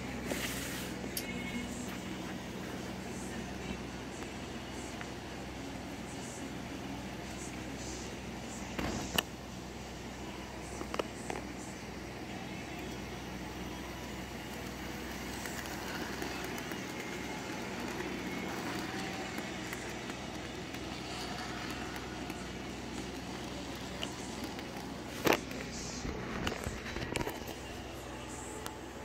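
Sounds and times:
model train whirring rattle: 14.6 - 25.3.

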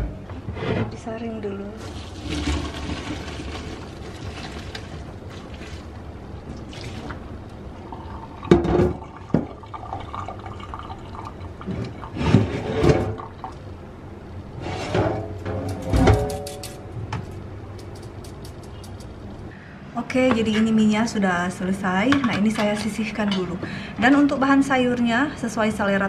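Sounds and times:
water pouring into a colander: 1.8 - 6.0, 6.6 - 7.2, 7.8 - 12.3.

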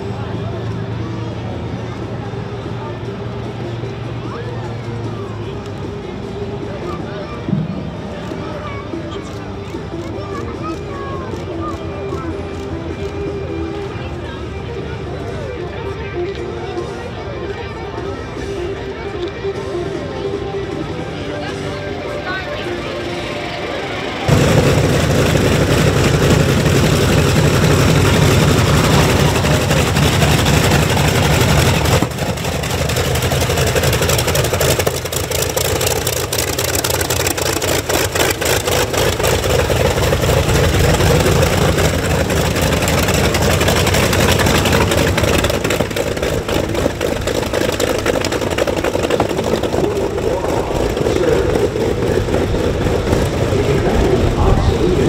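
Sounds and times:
radial aircraft engine throbbing: 17.1 - 55.0.

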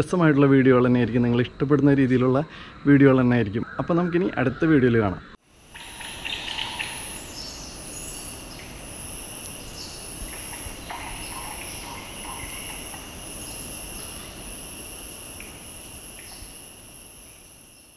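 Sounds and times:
high insect trill: 0.0 - 17.9
bird calls: 3.6 - 8.8, 9.5 - 14.4
low insect buzz: 5.4 - 17.9.

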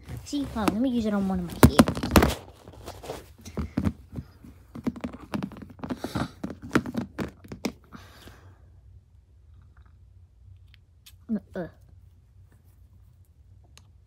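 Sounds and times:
small knocks and taps: 3.5 - 7.8.

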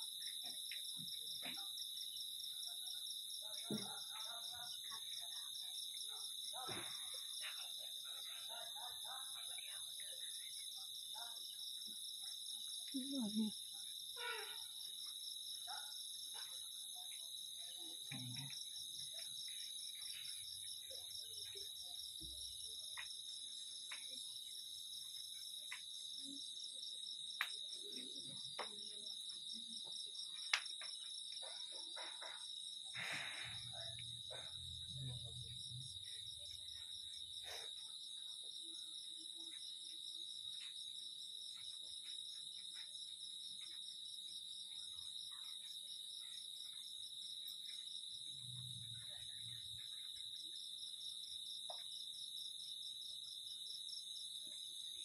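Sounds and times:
crickets and insects trilling: 28.5 - 43.9.

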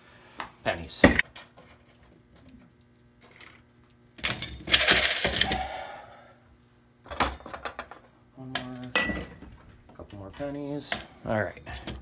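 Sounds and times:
coins clinking in a metal pot: 4.2 - 5.4.

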